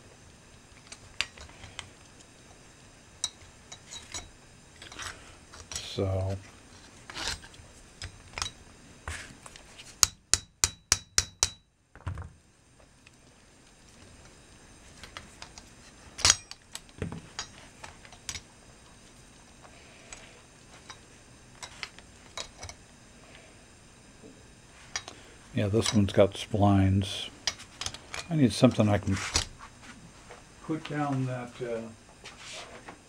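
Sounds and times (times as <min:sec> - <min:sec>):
hammer striking metal punch: 0:10.0 - 0:11.7.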